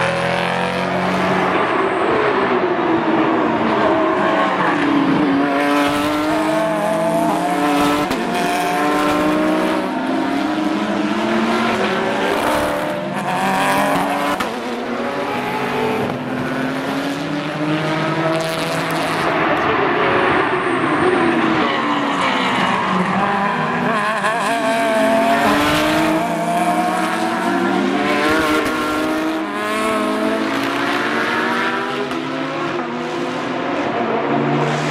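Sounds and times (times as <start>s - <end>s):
race car engines revving: 0.0s - 34.9s.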